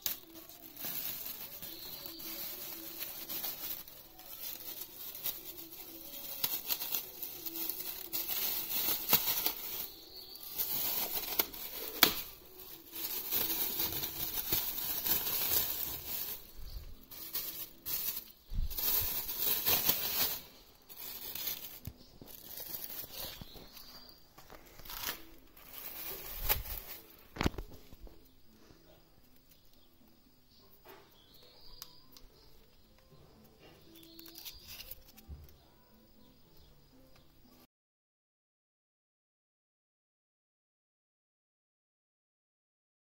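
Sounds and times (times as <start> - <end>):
plastic sheeting crinkling and tearing: 0.0 - 28.1, 33.8 - 35.3.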